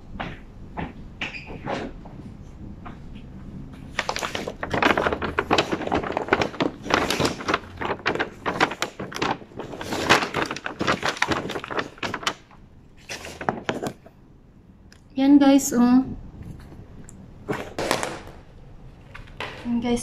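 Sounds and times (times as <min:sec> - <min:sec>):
carrier bag rustling: 0:03.8 - 0:14.1, 0:17.4 - 0:19.5.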